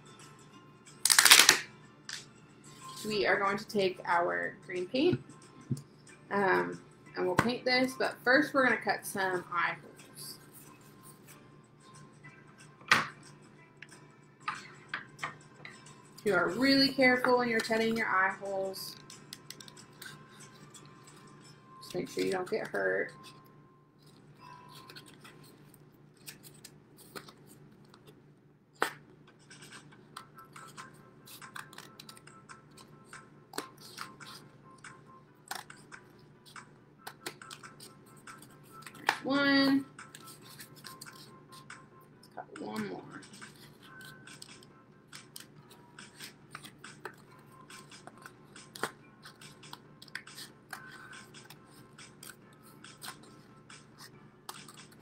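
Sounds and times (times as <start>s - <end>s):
scissors snipping paper plate: 42.8s - 55.0s.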